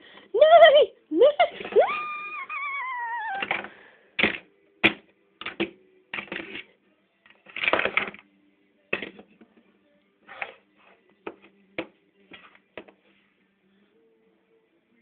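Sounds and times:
child imitating horse whinny: 0:01.8 - 0:03.5.

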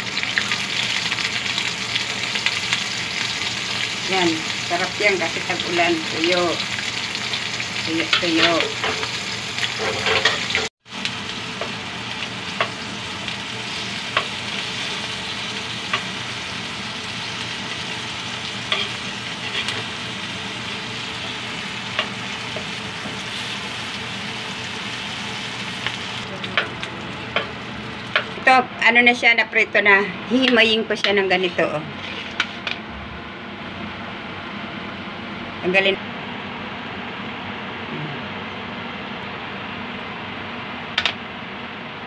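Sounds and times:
fish sizzling in hot oil: 0:00.0 - 0:26.4.

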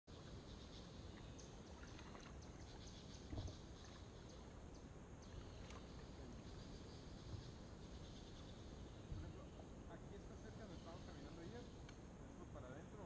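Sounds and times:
water dripping and trickling: 0:01.2 - 0:04.6.

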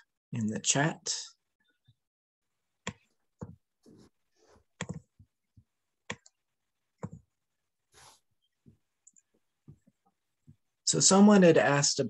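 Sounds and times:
faint clicks and taps: 0:02.8 - 0:07.4, 0:08.4 - 0:10.7.

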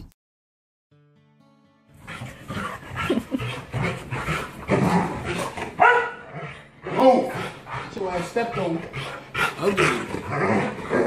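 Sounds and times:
dogs yipping and whining: 0:02.1 - 0:07.7
dog pitched cry: 0:04.8 - 0:06.4.

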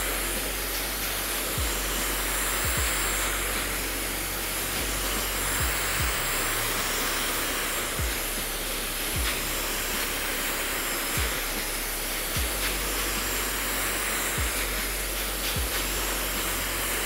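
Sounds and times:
low thumps: 0:00.0 - 0:13.7
hair dryer blowing: 0:00.0 - 0:17.0.

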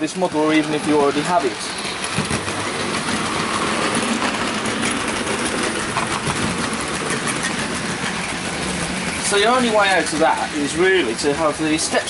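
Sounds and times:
model train wheels on track: 0:00.0 - 0:12.0.

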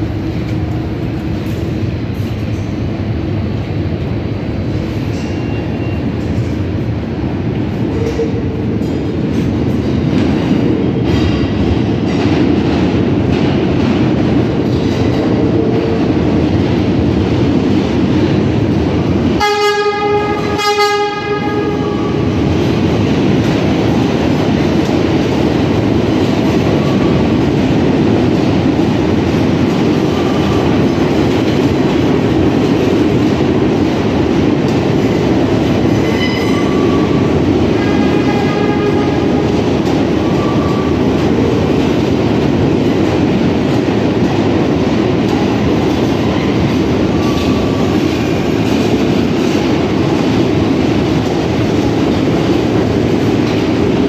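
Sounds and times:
subway train rumble and wheel clatter: 0:00.0 - 0:54.0
train horn blasts: 0:19.4 - 0:22.3, 0:37.7 - 0:39.6.

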